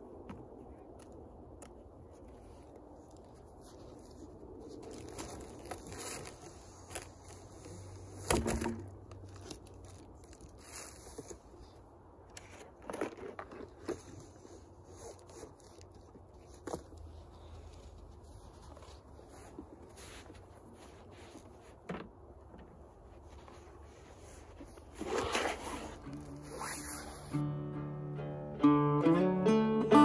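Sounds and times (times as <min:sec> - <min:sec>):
cardboard scraping and rustling: 0:04.7 - 0:11.7, 0:18.2 - 0:27.3.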